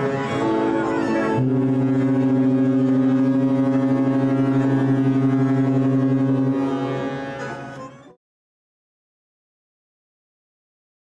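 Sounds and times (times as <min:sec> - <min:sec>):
ship's horn blast: 0:00.0 - 0:08.2.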